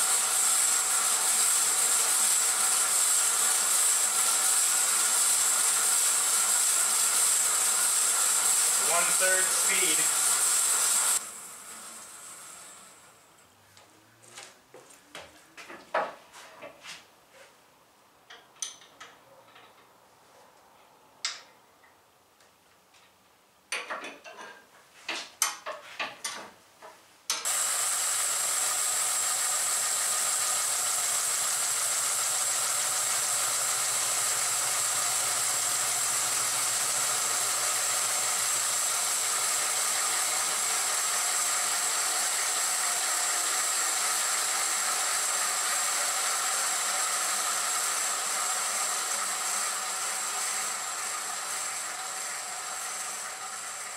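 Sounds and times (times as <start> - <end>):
bandsaw running: 0.0 - 13.2, 27.4 - 53.9.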